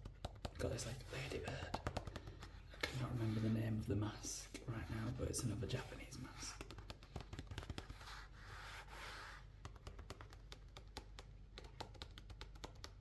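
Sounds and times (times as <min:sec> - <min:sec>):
fingers rubbing on paper: 0:05.7 - 0:11.0.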